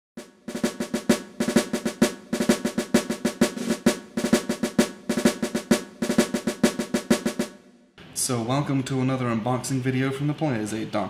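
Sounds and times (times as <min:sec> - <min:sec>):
snare drum rhythm: 0:00.2 - 0:07.6.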